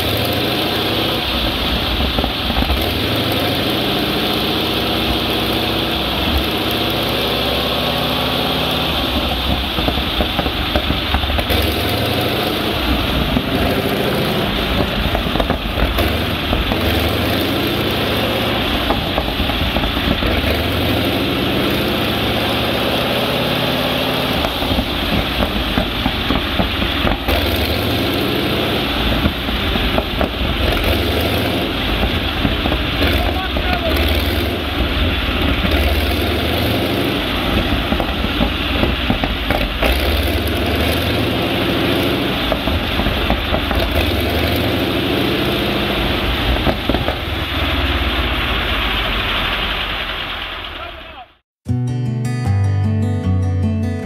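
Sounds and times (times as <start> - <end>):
radial aircraft engine revving: 0.0 - 50.8.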